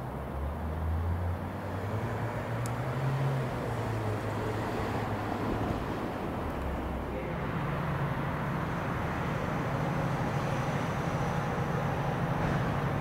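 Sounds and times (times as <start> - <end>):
diesel locomotive engine drone: 0.0 - 13.0
railway background rumble: 0.0 - 13.0.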